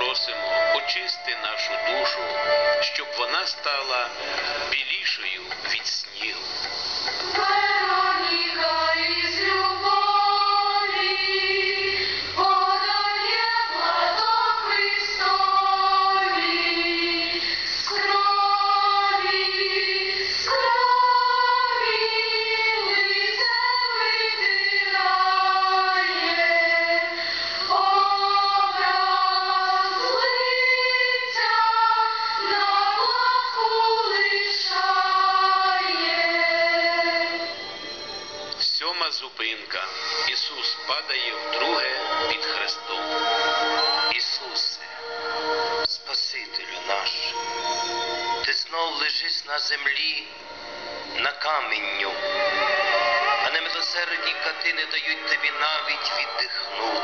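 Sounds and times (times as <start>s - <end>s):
youth choir singing slow melody: 6.2s - 38.6s, 44.8s - 48.5s, 50.8s - 57.0s.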